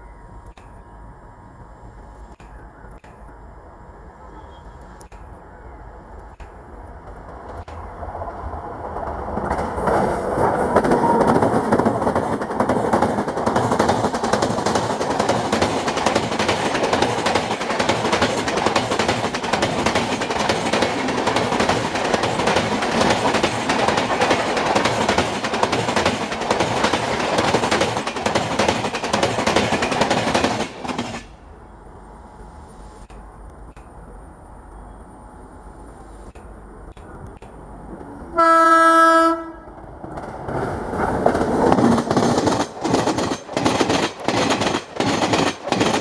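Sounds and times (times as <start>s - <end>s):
train wheels rushing on rails: 4.2s - 34.2s, 35.5s - 46.0s
clickety-clack over rail joints: 6.2s - 31.4s, 39.3s - 46.0s.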